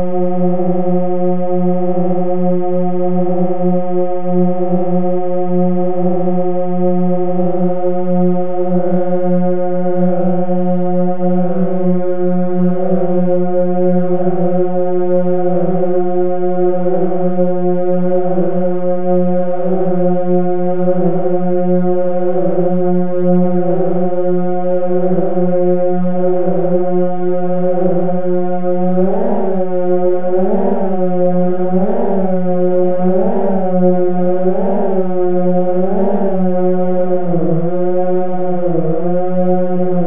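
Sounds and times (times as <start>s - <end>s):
synthesizer drone: 19.4s - 40.0s.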